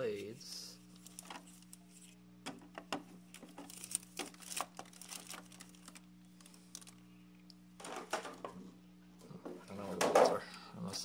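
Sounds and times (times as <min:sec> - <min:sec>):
faint steady hum: 0:00.0 - 0:11.0
plastic packaging crinkling: 0:00.8 - 0:02.2, 0:03.1 - 0:08.4.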